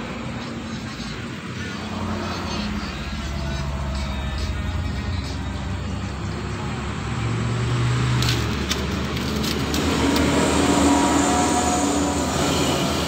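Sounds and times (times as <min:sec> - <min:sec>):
steady background rumble: 0:00.0 - 0:07.6.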